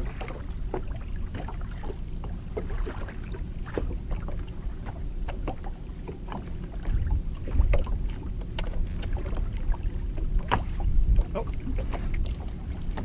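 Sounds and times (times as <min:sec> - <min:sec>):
waves lapping against boat hull: 0:00.0 - 0:13.0
wind rumbling on microphone: 0:00.0 - 0:13.0
small clicks and knocks: 0:08.4 - 0:09.2.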